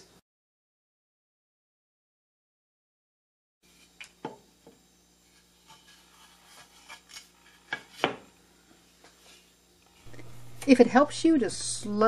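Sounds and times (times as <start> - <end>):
faint steady hum: 3.7 - 12.0.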